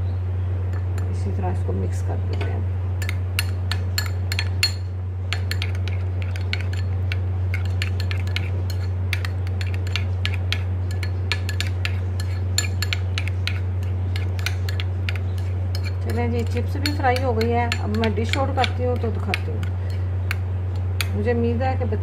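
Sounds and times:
steady low hum: 0:00.0 - 0:22.0
spoon scraping glass bowl: 0:03.4 - 0:20.0.

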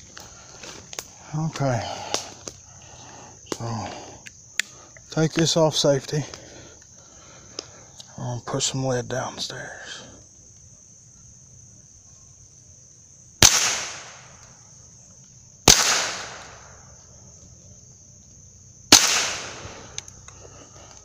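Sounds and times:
high insect drone: 0:00.0 - 0:21.0
rifle shots with echo: 0:13.4 - 0:14.3, 0:15.7 - 0:16.7, 0:18.9 - 0:19.7.

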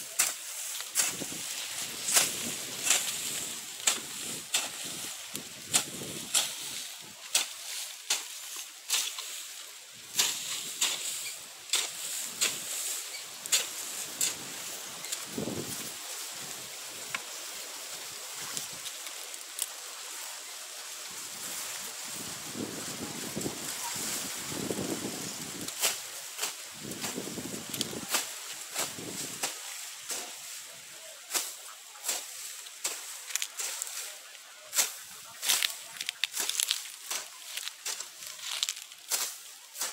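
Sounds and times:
hoe chopping through dry soil: 0:00.0 - 0:09.3.

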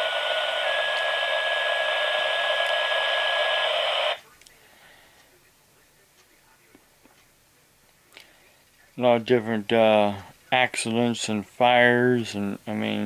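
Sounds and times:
steady paging tone: 0:00.0 - 0:04.4
radio hiss: 0:00.0 - 0:11.4.

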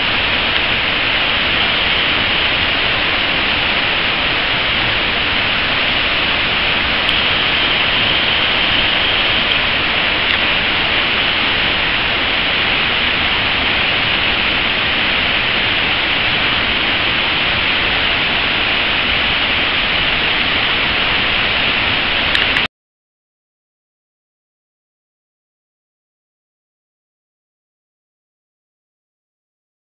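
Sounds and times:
waterfall rushing and splashing: 0:00.0 - 0:22.7.

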